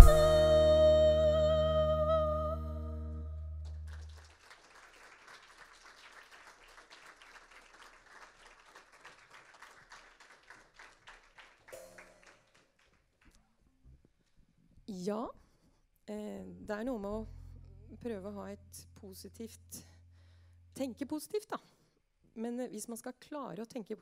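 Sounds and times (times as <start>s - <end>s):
person singing with vibrato: 0.0s - 3.5s
light applause: 3.6s - 13.4s.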